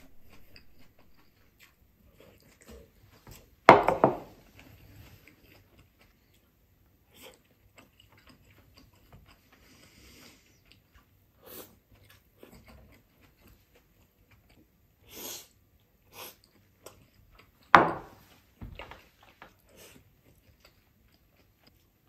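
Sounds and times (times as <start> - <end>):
man chewing food: 0.0 - 3.6, 4.3 - 22.0
sharp loud knock: 3.7 - 4.3
breaths through the nose: 9.5 - 10.6, 15.0 - 16.4.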